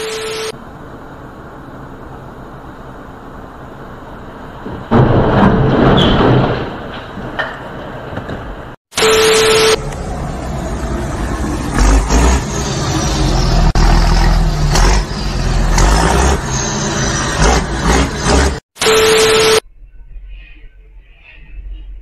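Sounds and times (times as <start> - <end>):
tv static hiss with tone: 0.0 - 0.6, 8.9 - 9.8, 18.8 - 19.6
road and engine noise: 0.0 - 5.2, 6.7 - 19.6
truck crash rumble and knocks: 4.5 - 8.8.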